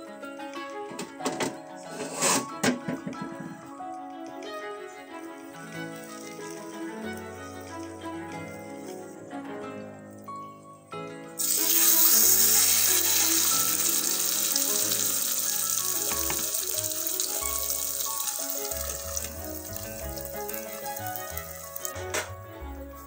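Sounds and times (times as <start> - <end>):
food sizzling in hot oil: 11.4 - 22.1.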